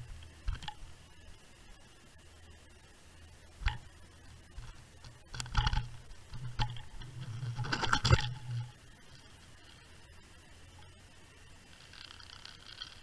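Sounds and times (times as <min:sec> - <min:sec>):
fishing rig knocking underwater: 0:03.6 - 0:03.9.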